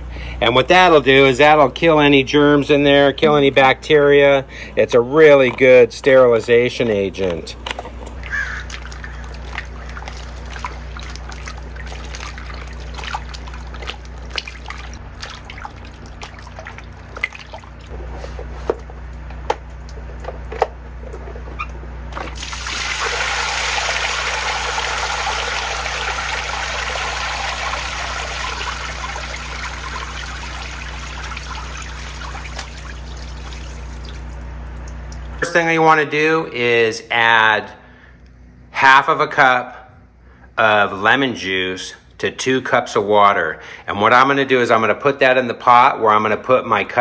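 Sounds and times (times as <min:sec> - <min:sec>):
water pouring onto concrete: 0:08.3 - 0:17.9, 0:22.1 - 0:35.4
hands swishing apples in water: 0:08.6 - 0:18.7.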